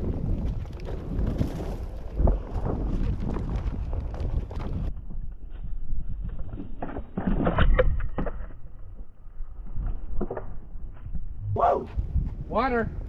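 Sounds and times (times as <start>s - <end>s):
wind buffeting microphone: 0.0s - 6.5s, 10.8s - 13.0s
tyre rolling over dirt trail: 0.0s - 7.6s.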